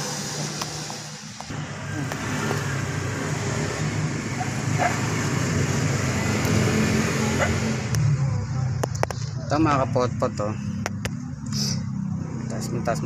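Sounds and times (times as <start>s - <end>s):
vehicle engine rumbling: 0.0s - 13.0s.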